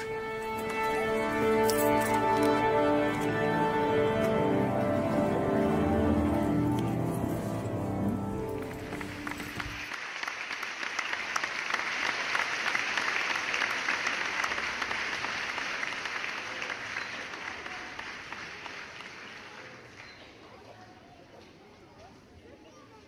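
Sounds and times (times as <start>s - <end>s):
audience applause: 2.2s - 20.4s.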